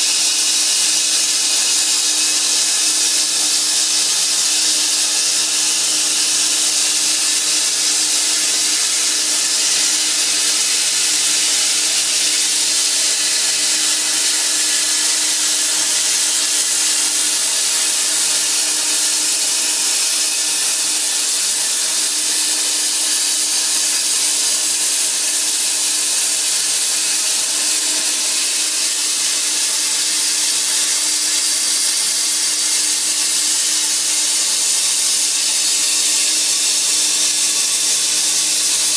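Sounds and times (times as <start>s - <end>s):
plasma cutter hissing: 0.1s - 38.9s.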